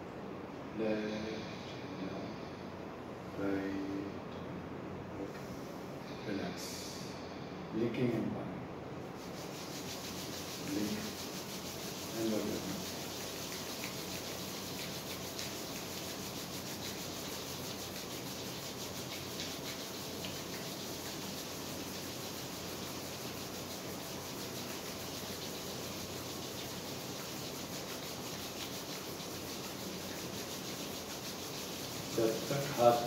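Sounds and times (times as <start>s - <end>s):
palms rubbing together: 9.0s - 33.0s.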